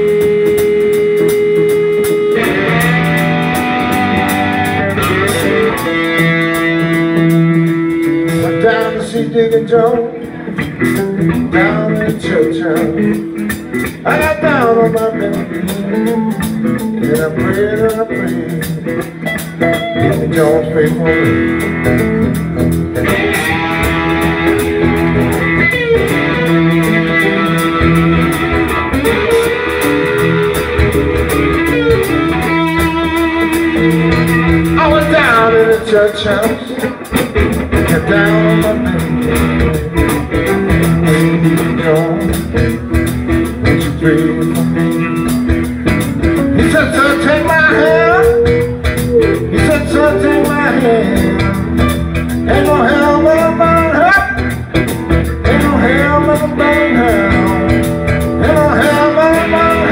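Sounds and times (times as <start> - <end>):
live blues band playing: 0.0 - 59.9
sliding guitar notes: 0.0 - 59.9.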